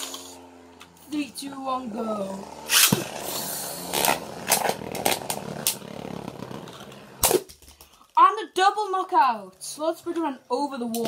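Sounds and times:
spinning tops whirring and clacking: 0.0 - 1.1, 2.6 - 7.9
spinning top ripped from launcher: 2.6 - 7.6.

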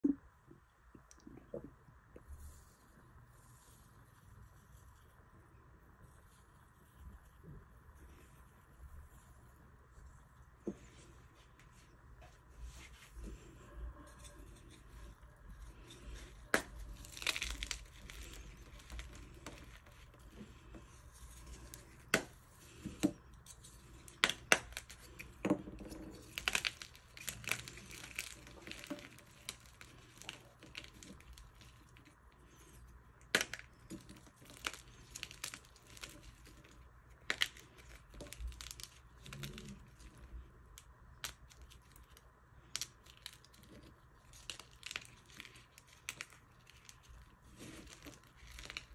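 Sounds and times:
chalk crumbling: 2.2 - 48.9
chalk cracking and crunching: 12.6 - 48.9.

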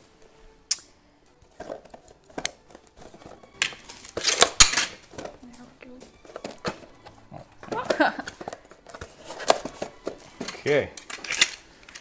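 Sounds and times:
cardboard rustling: 6.0 - 12.0.

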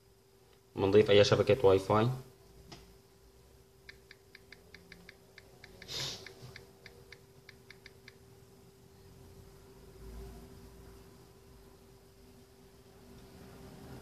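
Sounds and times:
faint hum: 0.0 - 14.0
phone keyboard ticks: 3.9 - 8.2.

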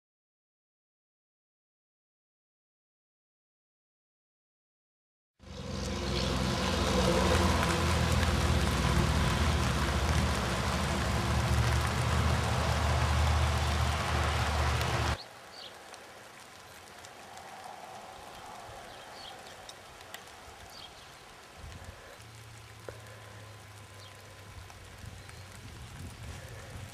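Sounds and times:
rushing noise: 5.4 - 15.2
vehicle engine drone: 5.4 - 15.2, 21.2 - 26.9.

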